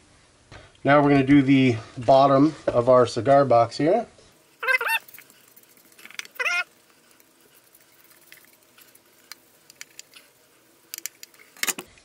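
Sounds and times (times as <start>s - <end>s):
brush tapping and scratching: 4.4s - 11.7s.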